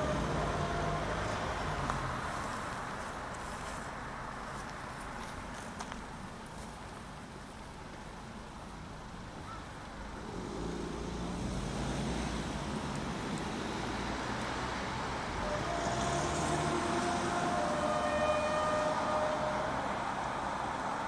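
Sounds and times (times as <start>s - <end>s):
train diesel engines droning: 0.0s - 4.6s, 10.0s - 21.0s.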